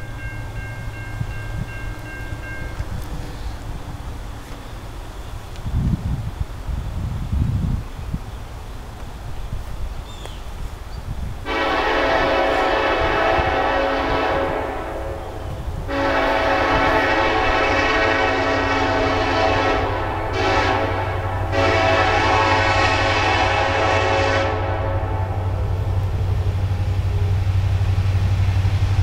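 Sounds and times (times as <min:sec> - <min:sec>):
low engine rumble: 0:00.0 - 0:29.0
train air horn blowing: 0:11.4 - 0:25.9.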